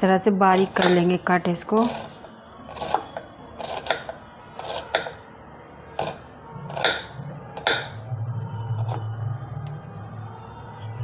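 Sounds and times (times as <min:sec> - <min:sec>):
knife chopping on wooden board: 0:00.6 - 0:01.0, 0:02.7 - 0:05.2, 0:05.9 - 0:07.9.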